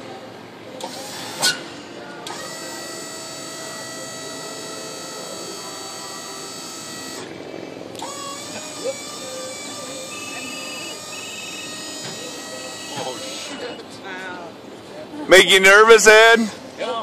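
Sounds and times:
hydraulic lift motor whining: 0.8 - 13.9.

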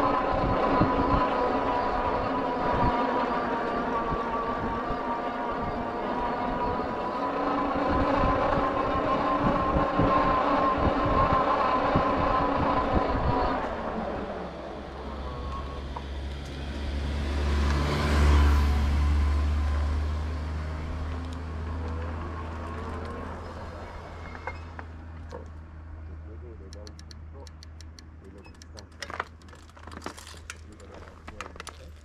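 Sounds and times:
wind gusting on microphone: 0.0 - 15.9
engine running close by: 0.0 - 32.0
motor vehicle passing: 0.0 - 32.0.

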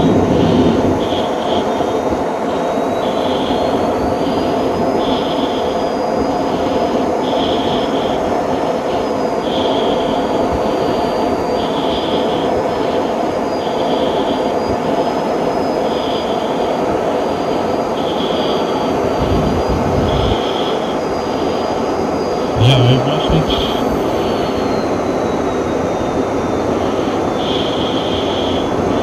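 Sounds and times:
faint high whine: 0.0 - 29.0
jet cockpit rushing noise: 15.9 - 21.6, 22.4 - 25.3.

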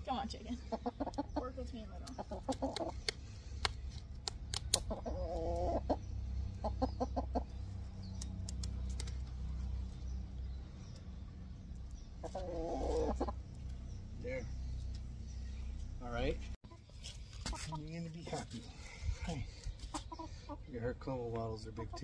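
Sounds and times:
hen clucking: 0.3 - 3.2, 4.6 - 7.6, 12.1 - 13.6, 19.7 - 20.8, 21.6 - 22.0.

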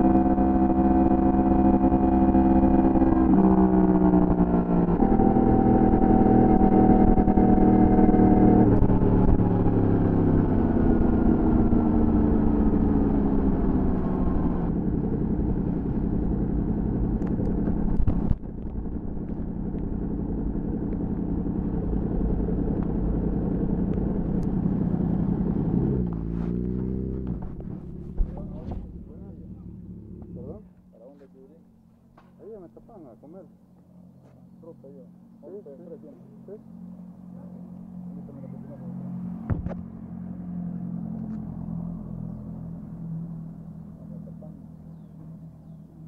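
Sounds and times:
motorcycle engine downshifting: 0.0 - 30.9
brief knock: 39.5 - 39.8.

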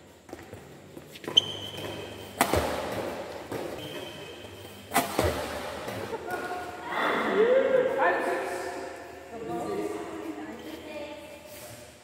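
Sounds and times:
racket hitting shuttlecock: 1.2 - 6.8.

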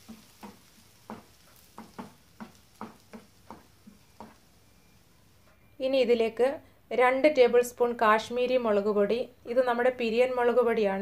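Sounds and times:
spatula scraping frying pan: 0.0 - 4.5.

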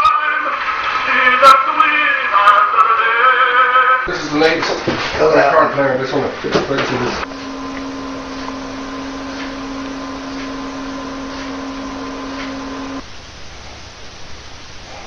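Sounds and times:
electrical hum with hiss: 7.0 - 15.0.

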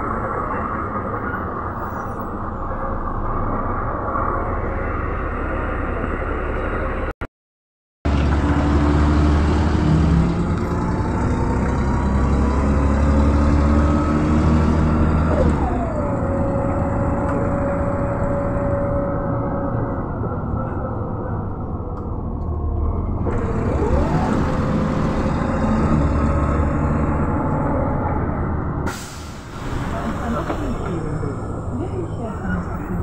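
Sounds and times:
bus diesel engine running: 8.1 - 33.0.

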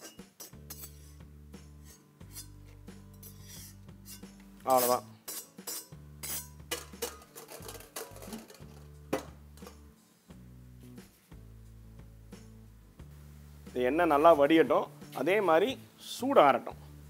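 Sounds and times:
steel utensils clinking and scraping: 0.0 - 1.2, 1.8 - 9.0, 9.6 - 9.9
background music: 0.0 - 17.0.

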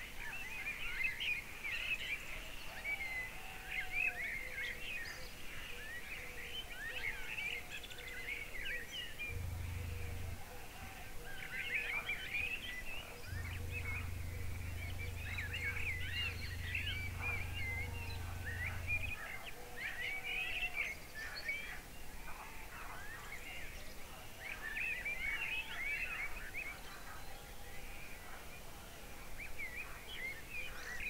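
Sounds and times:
birds chirping and trilling: 0.0 - 31.0
low steady hum: 9.1 - 24.4.

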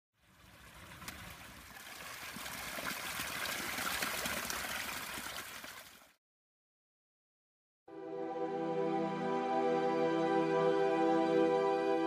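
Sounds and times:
water splashing onto rocks: 0.4 - 6.1.

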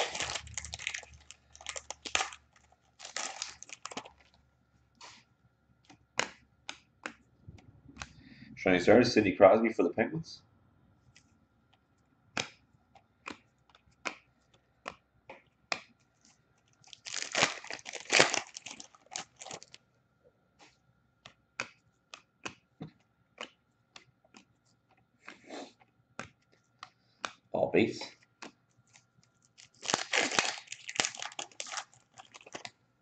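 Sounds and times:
card pack wrapper tearing: 0.0 - 4.3, 16.9 - 19.8, 29.6 - 32.7.

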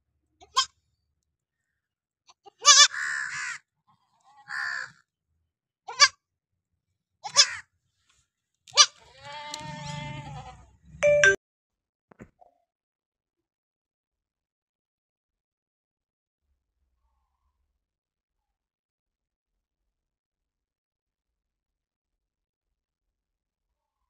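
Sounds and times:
goat kid bleating: 0.4 - 0.8, 2.3 - 3.3, 3.9 - 4.9, 5.9 - 6.2, 7.2 - 7.6, 8.7 - 10.7.

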